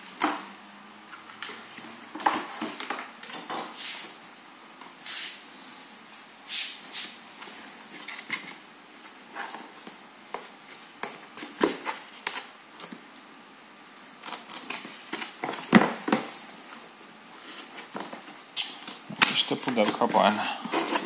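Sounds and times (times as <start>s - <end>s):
cardboard scraping and rustling: 14.2s - 21.0s.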